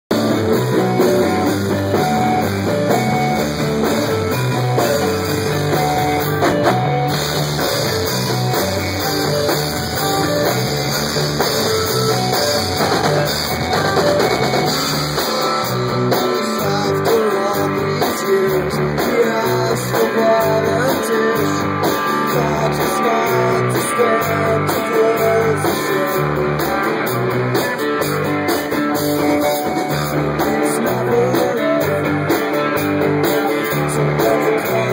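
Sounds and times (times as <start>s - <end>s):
bass guitar: 0.0s - 34.9s
drum kit: 0.1s - 34.9s
electric guitar: 0.1s - 34.9s.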